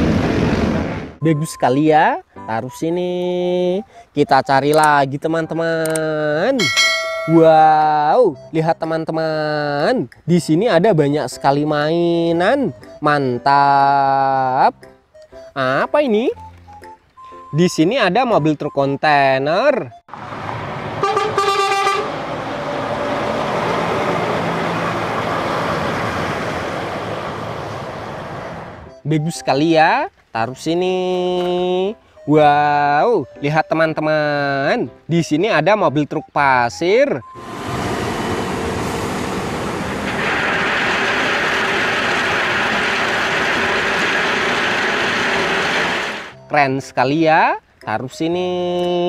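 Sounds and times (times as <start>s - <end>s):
truck driving past: 20.1s - 29.0s, 37.2s - 46.4s
truck horn: 21.0s - 22.3s.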